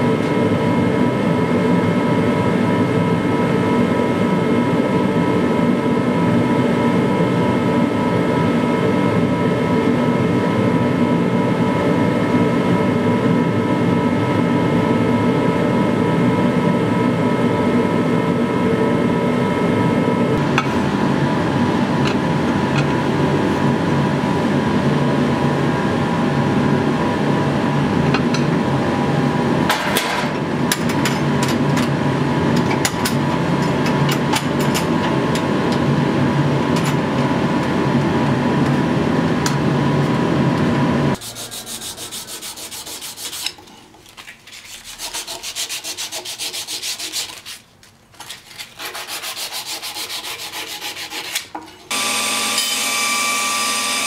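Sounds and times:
loud mechanical drone: 0.0s - 42.4s, 51.9s - 54.0s
knife blade rubbing strokes: 41.2s - 51.5s.

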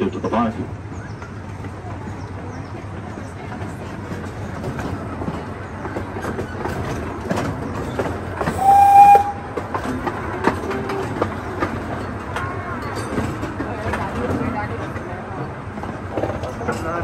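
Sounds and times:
small train running on track: 0.0s - 17.0s
wheels clicking: 1.0s - 17.0s
train whistle blast: 8.6s - 9.6s.

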